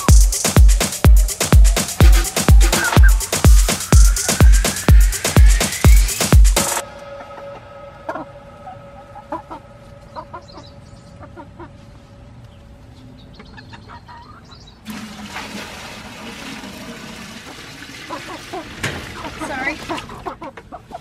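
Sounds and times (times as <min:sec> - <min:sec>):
hens clucking: 0:07.0 - 0:12.1, 0:13.3 - 0:14.8, 0:17.4 - 0:21.0
water poured from bucket: 0:14.9 - 0:19.6.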